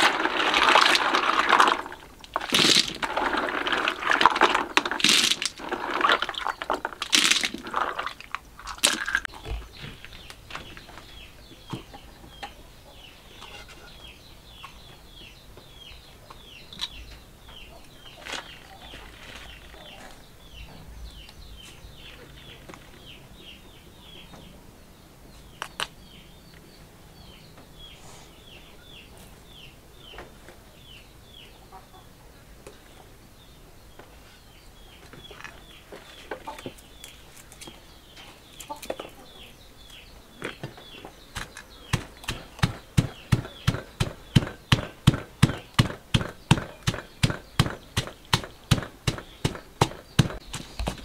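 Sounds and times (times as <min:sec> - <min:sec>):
snail shells clattering in water: 0:00.0 - 0:09.3
bird chirping: 0:00.0 - 0:51.0.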